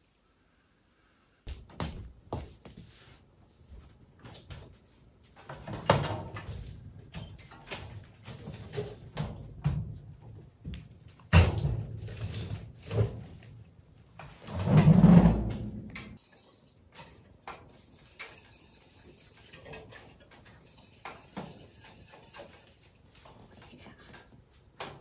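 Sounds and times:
wood scraping into stove: 14.2s - 16.2s.

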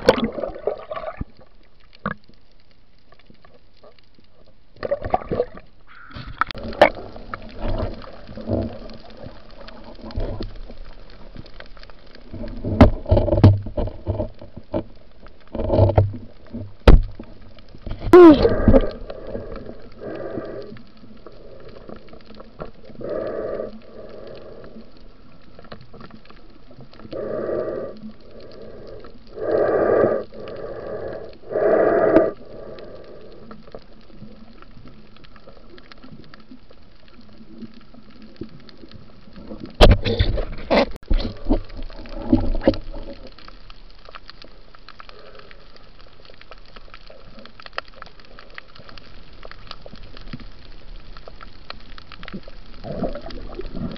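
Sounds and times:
underwater gurgling water and bubbles: 0.0s - 53.9s
steady hiss: 16.5s - 39.7s.

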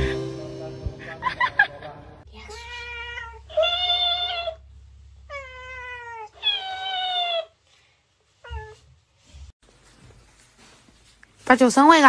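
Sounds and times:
cat meowing: 2.3s - 4.6s, 5.3s - 7.6s.

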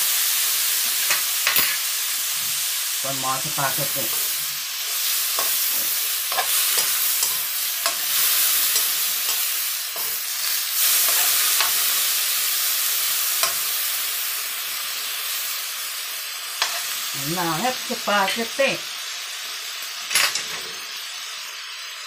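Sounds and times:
food sizzling in a hot pan: 0.0s - 22.0s
metal spoon scraping pan: 4.9s - 11.9s, 16.6s - 17.0s.

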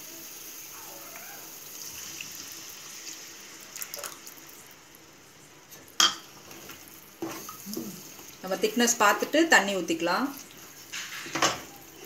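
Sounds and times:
liquid pouring into a pan: 1.1s - 4.9s.

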